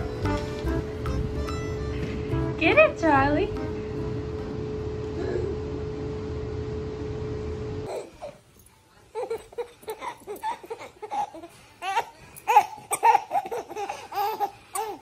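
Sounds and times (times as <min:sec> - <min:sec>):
baby giggling: 0:07.9 - 0:08.4, 0:09.1 - 0:15.0.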